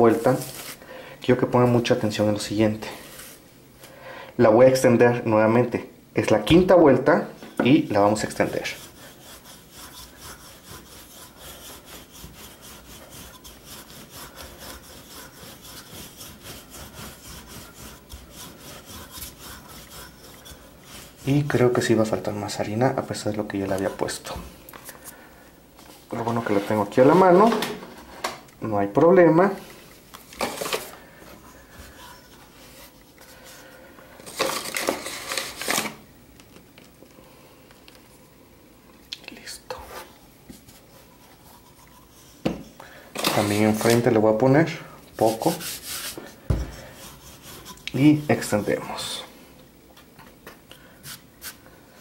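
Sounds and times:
rolling pin rubbing over dough: 7.6s - 24.4s, 30.5s - 33.7s, 39.8s - 49.2s.

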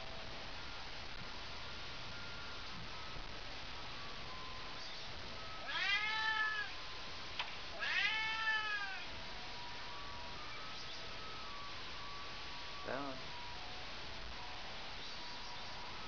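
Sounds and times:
cat meowing: 5.6s - 6.8s, 7.7s - 9.1s.

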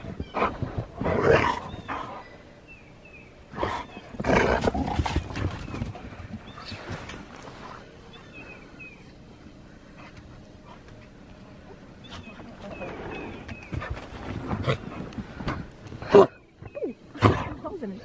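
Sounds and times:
dog play-growling: 3.6s - 7.8s.

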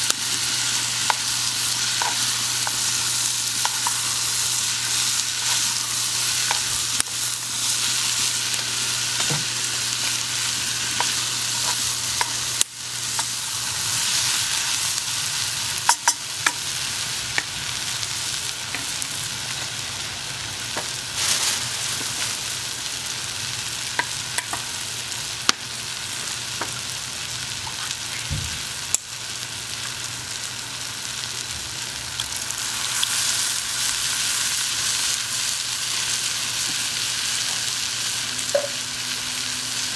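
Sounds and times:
onions sizzling in a pot: 0.0s - 39.9s.

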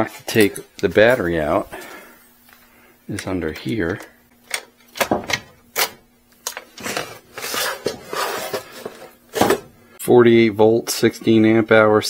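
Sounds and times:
battery pack scraping out: 6.7s - 9.6s.

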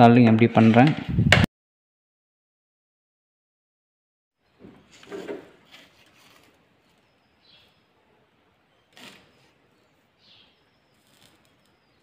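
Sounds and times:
faint high chirps: 6.8s - 12.0s
handling noise of wires: 10.9s - 12.0s.

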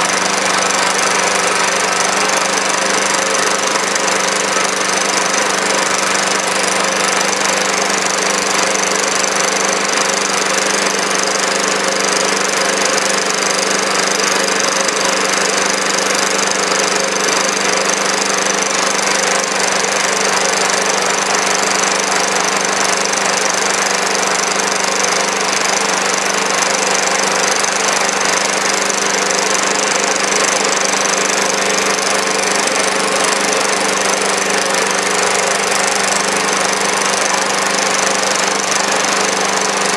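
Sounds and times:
small engine running steadily: 0.0s - 39.9s.

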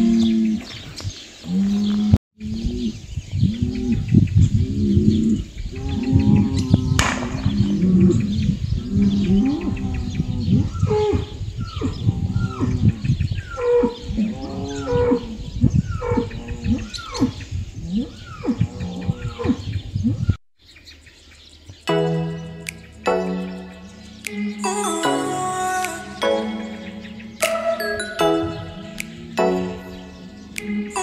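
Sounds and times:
bulls mooing and bellowing: 0.0s - 0.7s, 1.4s - 19.6s, 26.7s - 31.0s.

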